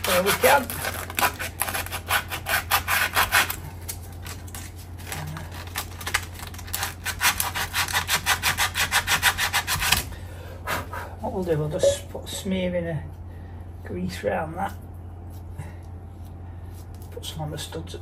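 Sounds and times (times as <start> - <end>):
sandpaper rubbing on metal: 7.0 - 10.0.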